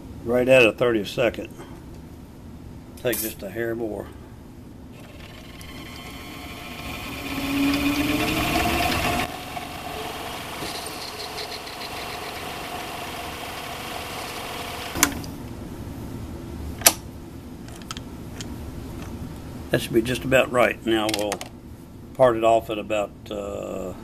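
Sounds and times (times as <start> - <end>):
metal lathe running: 5.0 - 15.0.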